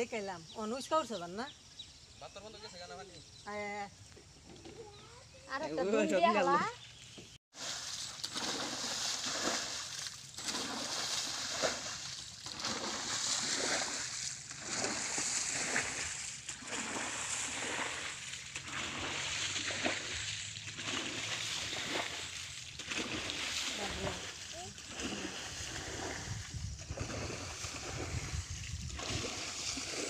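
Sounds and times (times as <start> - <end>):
muddy water splashing: 7.5 - 30.0.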